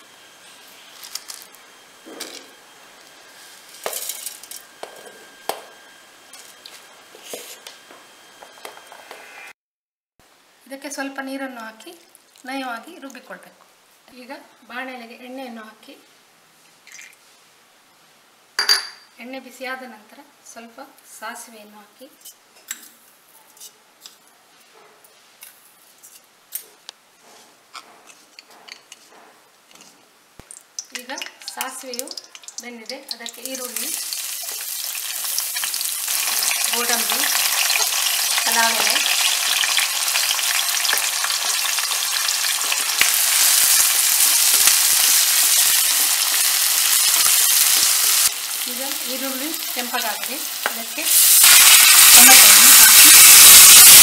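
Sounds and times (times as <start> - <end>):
seeds popping in hot oil: 30.4 - 49.2.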